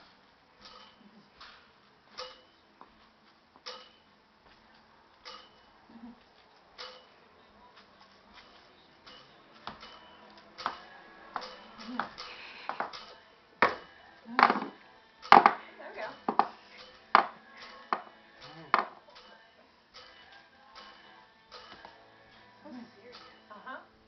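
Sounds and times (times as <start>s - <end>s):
maracas rattling: 6.4s - 23.7s.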